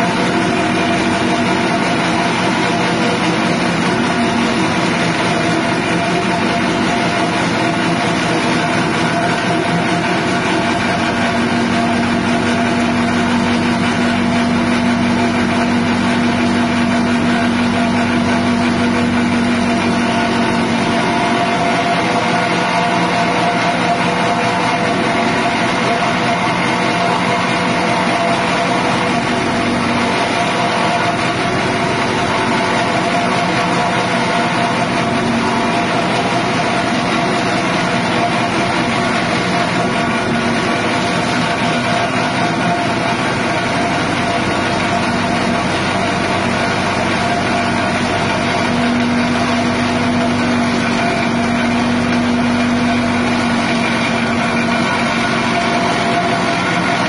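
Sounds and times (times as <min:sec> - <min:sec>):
blades shredding grass: 0:00.0 - 0:57.0
petrol engine running: 0:00.0 - 0:57.0.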